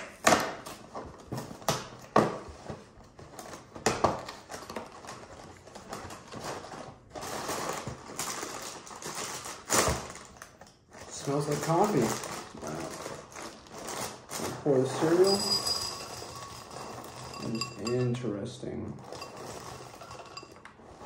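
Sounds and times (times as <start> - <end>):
plastic bag crinkling: 3.2 - 18.1, 19.0 - 21.0.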